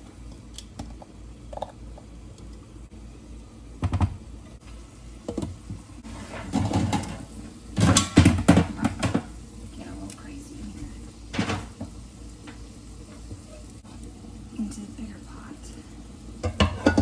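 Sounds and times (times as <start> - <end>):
steady low hum: 0.0 - 17.0
utensils and cookware clattering: 5.3 - 9.9, 11.3 - 11.7, 16.4 - 17.0.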